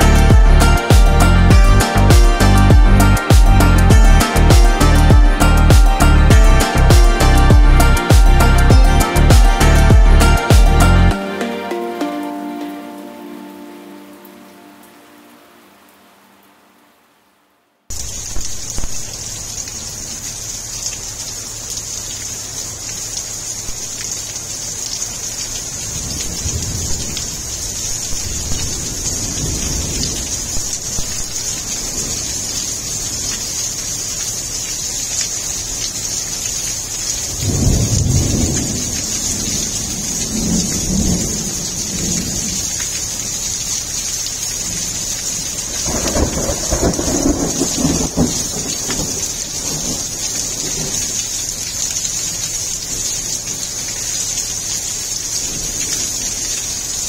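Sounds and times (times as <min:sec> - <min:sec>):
heavy rain on gravel: 0:00.0 - 0:16.6, 0:17.9 - 0:57.0
rolling thunder: 0:26.0 - 0:31.2, 0:37.4 - 0:42.5, 0:45.7 - 0:50.1.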